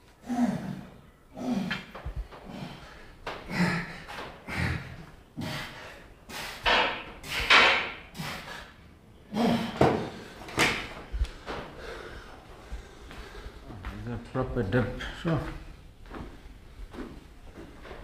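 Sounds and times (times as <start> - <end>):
person grunting: 0.2 - 1.9, 9.3 - 10.0
person breathing hard: 0.2 - 13.9.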